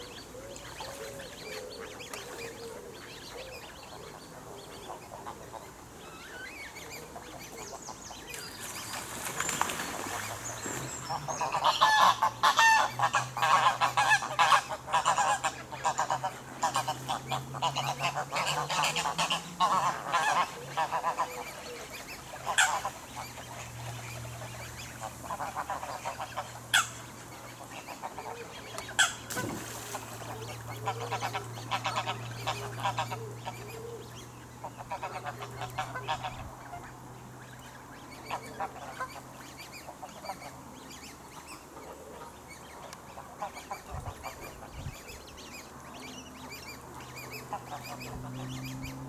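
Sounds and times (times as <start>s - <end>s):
geese honking: 11.1s - 21.7s, 22.3s - 23.7s, 25.0s - 27.0s, 27.7s - 33.6s, 34.6s - 37.0s.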